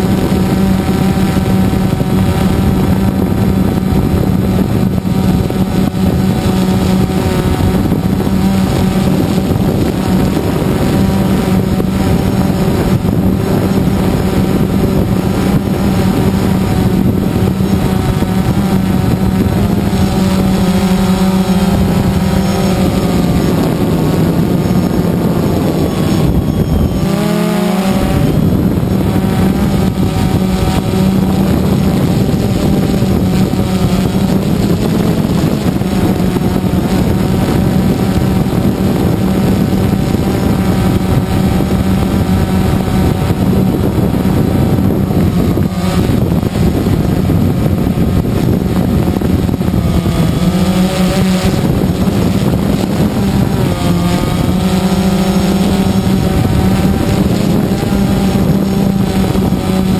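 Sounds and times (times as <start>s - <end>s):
drone propellers humming: 0.0s - 59.9s.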